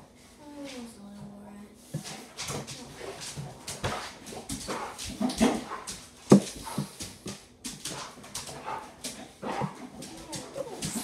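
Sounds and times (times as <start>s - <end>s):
dog whimpering: 9.9s - 11.0s.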